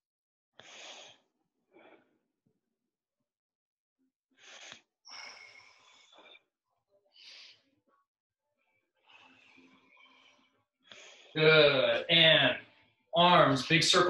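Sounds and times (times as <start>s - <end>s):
man breathing: 4.4s - 6.4s, 9.0s - 11.8s.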